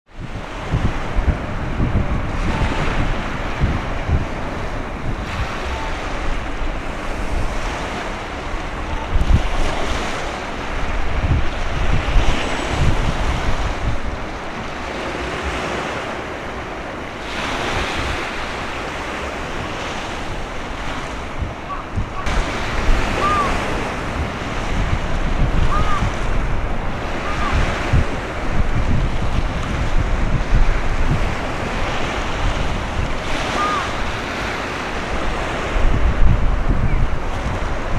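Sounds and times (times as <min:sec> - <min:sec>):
choppy waves: 0:00.1 - 0:37.9
wind buffeting microphone: 0:00.1 - 0:37.9.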